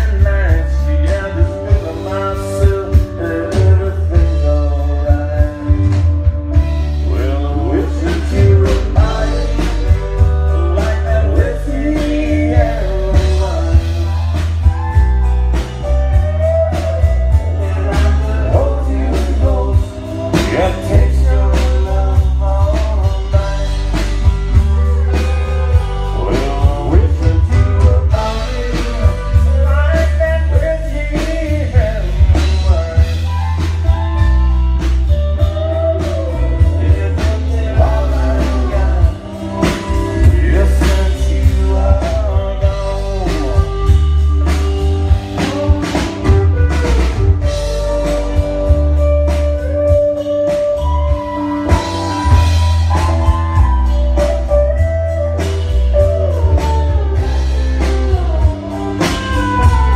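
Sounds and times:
country band playing: 0:00.0 - 0:59.9
man singing: 0:00.0 - 0:59.9
drum beat: 0:33.8 - 0:59.9.

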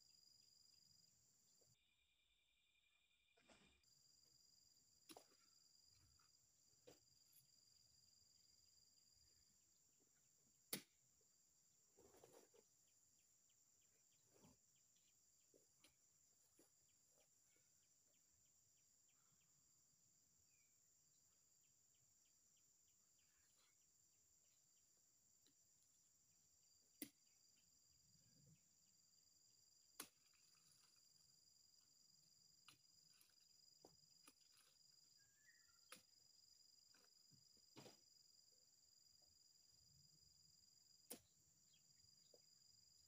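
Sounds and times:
insects chirring: 0:11.2 - 0:43.0.

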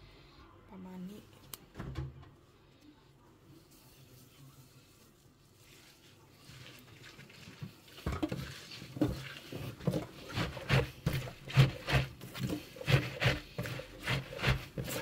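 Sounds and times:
hands squeezing wet greens: 0:03.6 - 0:15.0.

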